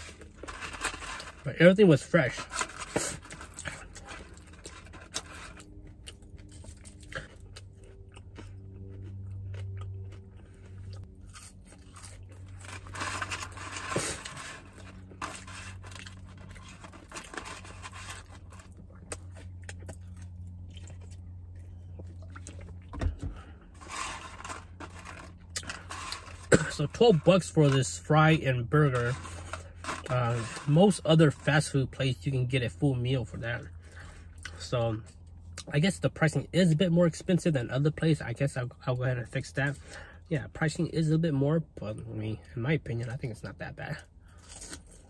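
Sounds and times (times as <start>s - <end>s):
person chewing and crunching food: 0.0s - 28.1s, 44.2s - 45.0s
steady low hum: 0.0s - 45.0s.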